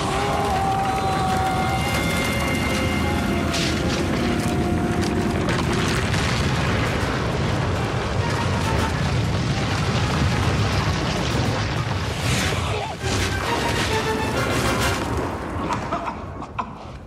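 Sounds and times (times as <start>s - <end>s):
heavy rumble with booms: 0.0s - 15.9s
dramatic background music: 1.5s - 6.2s, 13.0s - 15.6s.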